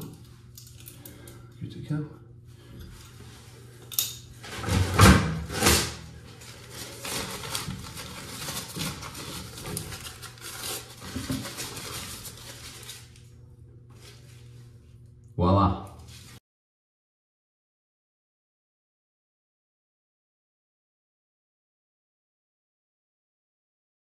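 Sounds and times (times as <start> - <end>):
rustling from hands: 6.3 - 13.2.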